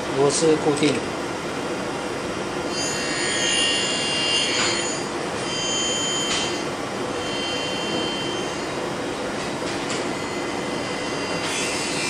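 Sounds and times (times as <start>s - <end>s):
mechanical hum and hiss: 0.0s - 12.0s
faint high whine: 2.7s - 11.9s.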